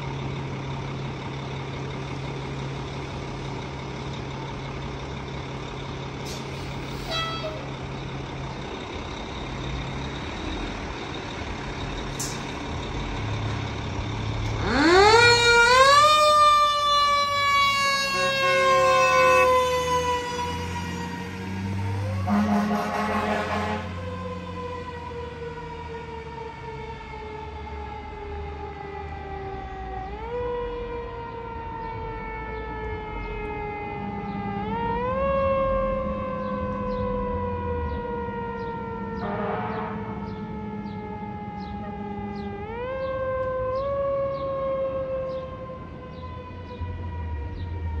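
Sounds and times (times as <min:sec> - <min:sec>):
mechanical siren wailing: 0:06.8 - 0:08.0, 0:14.3 - 0:48.0.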